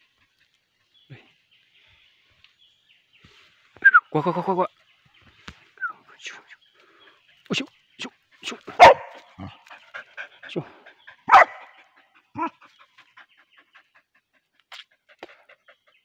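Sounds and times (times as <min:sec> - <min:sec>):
dog barking: 0:08.7 - 0:09.6, 0:11.2 - 0:11.8.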